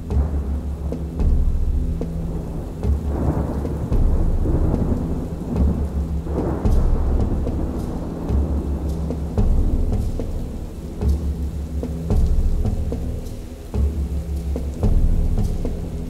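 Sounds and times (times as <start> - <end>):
rain hissing: 0.0 - 16.0
low thunder rolling: 0.2 - 11.1.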